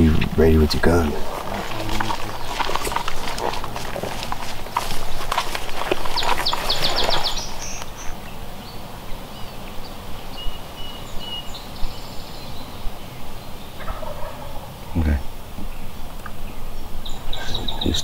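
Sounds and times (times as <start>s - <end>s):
songbirds chirping: 0.0s - 18.0s
footsteps through leaf litter: 1.1s - 7.9s.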